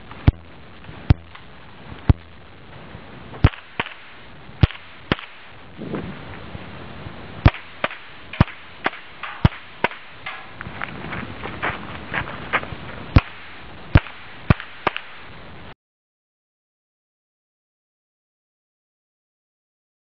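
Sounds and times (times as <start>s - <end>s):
rifle shots: 3.4s - 5.6s, 7.4s - 10.5s, 13.2s - 15.3s.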